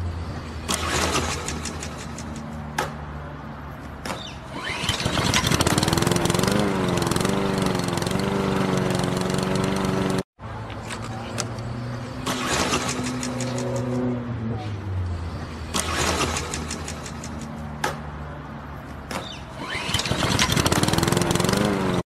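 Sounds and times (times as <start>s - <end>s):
starter cord rasps: 4.5s - 10.2s, 19.6s - 21.8s
lawn mower engine running: 4.5s - 10.3s, 12.2s - 14.0s, 19.6s - 22.0s.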